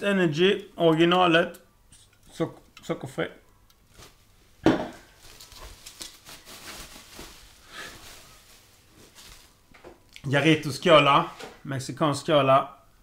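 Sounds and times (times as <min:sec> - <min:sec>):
bubble wrap and plastic crinkling: 0:03.8 - 0:04.4, 0:05.0 - 0:10.0.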